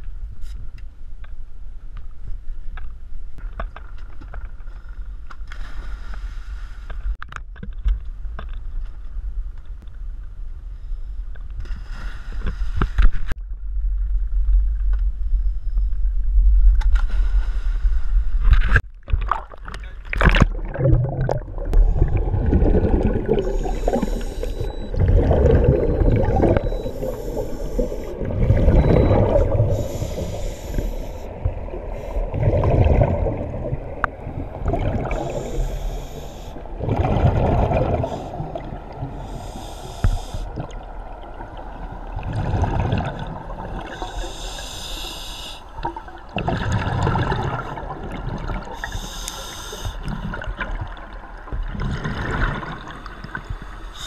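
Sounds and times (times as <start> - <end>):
exhaled bubbles rumbling: 17.9 - 39.3, 40.4 - 44.1, 45.8 - 48.9, 49.9 - 53.8
regulator hiss on inhale: 23.4 - 24.8, 26.6 - 32.3, 35.1 - 36.7, 39.1 - 40.6, 43.8 - 45.8, 48.8 - 50.2, 53.6 - 54.0.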